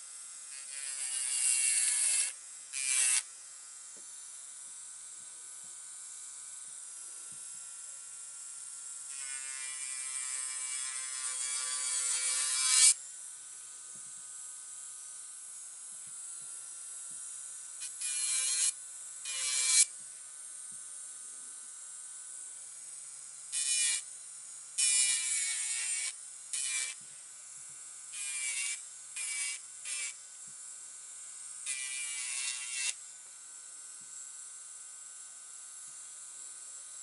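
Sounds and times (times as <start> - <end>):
electric nail drill whining: 0.0 - 3.3, 9.0 - 13.0, 17.8 - 20.0, 22.9 - 30.6, 31.4 - 33.0
drill bit grinding on nail: 0.5 - 3.3, 9.1 - 13.0, 17.8 - 19.9, 23.5 - 24.1, 24.8 - 27.0, 28.1 - 30.2, 31.6 - 33.0.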